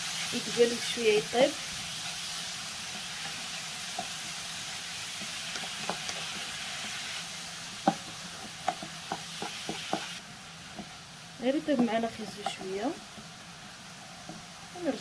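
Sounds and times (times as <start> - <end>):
vegetables sizzling in a frying pan: 0.0 - 15.0.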